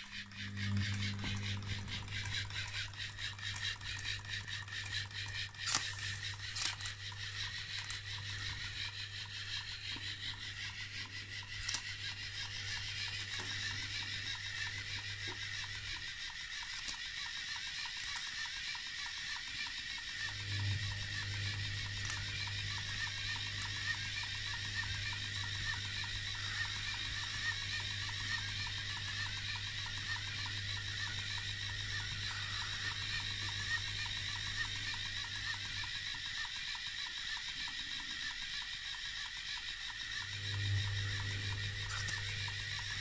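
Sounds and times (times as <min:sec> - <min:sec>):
pump low hum: 0:00.0 - 0:10.4
sharp clicks: 0:00.0 - 0:15.8, 0:38.6 - 0:43.0.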